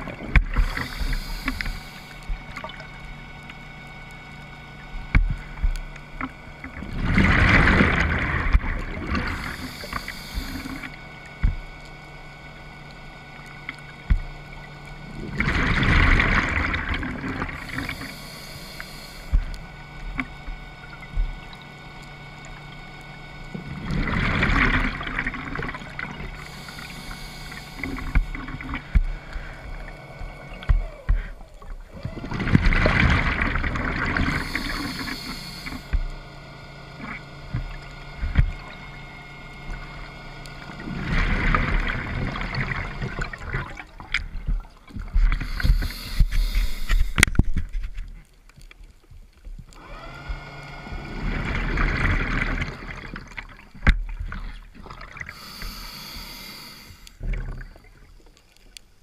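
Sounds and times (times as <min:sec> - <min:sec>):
exhaled bubbles underwater: 0:00.0 - 0:47.7, 0:49.6 - 0:59.0
regulator inhalation hiss: 0:00.5 - 0:02.4, 0:09.2 - 0:11.0, 0:17.5 - 0:19.5, 0:26.3 - 0:28.6, 0:34.2 - 0:36.0, 0:45.3 - 0:47.2, 0:55.3 - 0:57.2.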